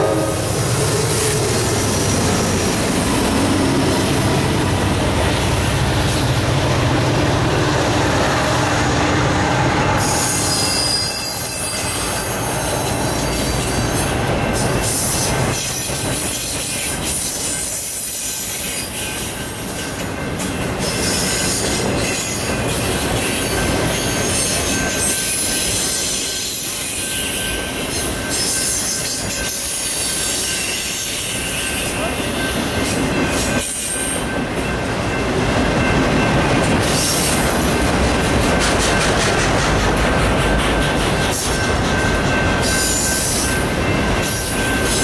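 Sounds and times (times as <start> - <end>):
steel wheels rumbling on rail: 0.0 - 45.0
high wheel squeal: 9.4 - 19.3.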